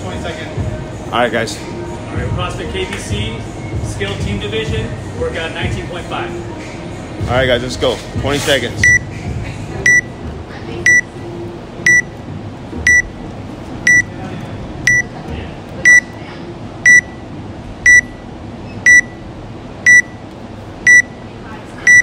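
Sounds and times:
short high electronic beeps: 11.9 - 12.1, 13.9 - 14.1, 17.9 - 18.2, 18.8 - 19.2, 19.9 - 20.2.

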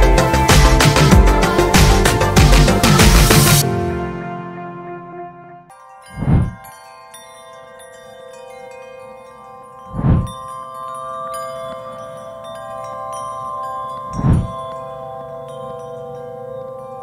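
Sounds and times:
shimmering chime and bell music: 0.0 - 4.0, 5.7 - 17.0
rising and falling whoosh: 6.2 - 6.6, 9.9 - 10.3, 14.2 - 14.6.

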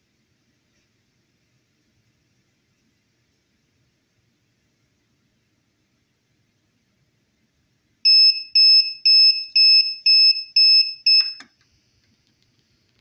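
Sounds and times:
high-pitched timer alarm beeps: 8.1 - 11.4.

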